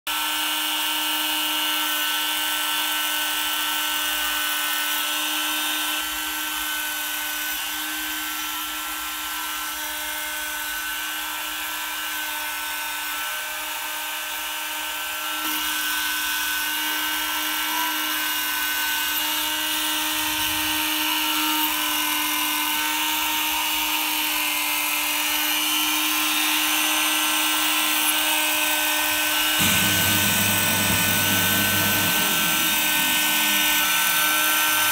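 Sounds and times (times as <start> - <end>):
rotary tool whining: 26.8 - 34.9.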